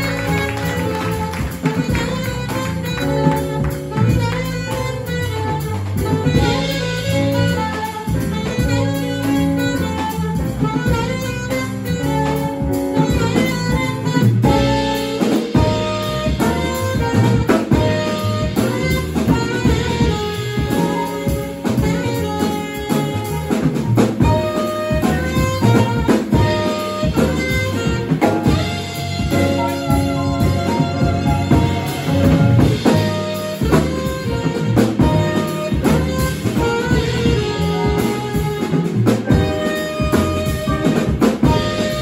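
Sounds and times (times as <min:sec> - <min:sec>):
drum kit: 0:00.0 - 0:42.0
piano: 0:00.0 - 0:42.0
saxophone: 0:00.0 - 0:42.0
upright bass: 0:00.0 - 0:42.0.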